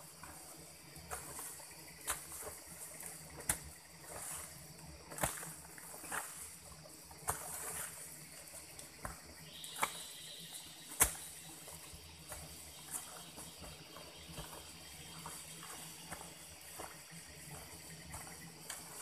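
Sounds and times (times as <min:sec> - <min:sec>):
digging tool chopping into soil: 0:09.0 - 0:10.1, 0:10.9 - 0:11.4
dirt scattering: 0:10.9 - 0:11.4.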